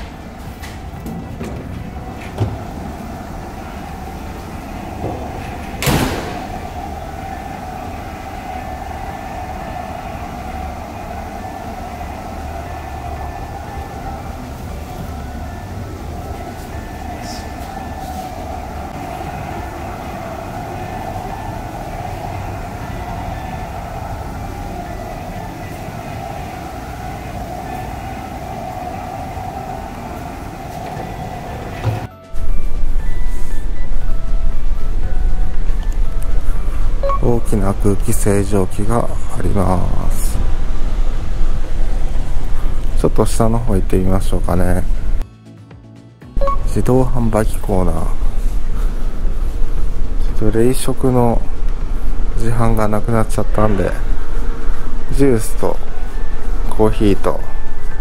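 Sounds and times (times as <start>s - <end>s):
low machinery hum: 0.0s - 45.2s, 46.4s - 58.0s
door thud: 5.0s - 6.6s.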